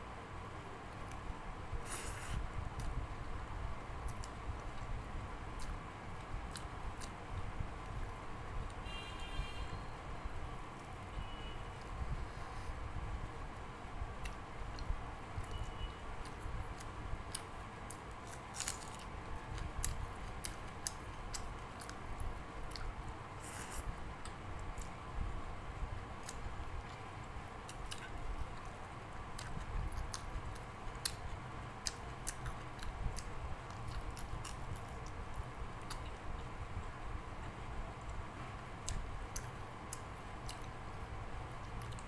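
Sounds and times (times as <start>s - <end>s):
background hum: 0.0s - 42.0s
chewing and wet mouth sounds: 4.0s - 8.2s, 14.2s - 25.0s, 26.2s - 36.4s, 38.8s - 42.0s.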